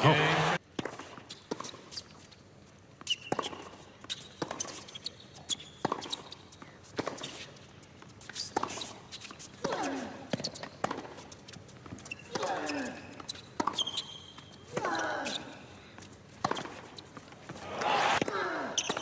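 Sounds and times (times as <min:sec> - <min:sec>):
tennis ball bouncing: 0:03.0 - 0:04.8, 0:05.8 - 0:06.3, 0:10.3 - 0:12.6, 0:13.2 - 0:14.9
shoe squeak: 0:03.0 - 0:06.6, 0:08.2 - 0:09.4, 0:11.9 - 0:14.6.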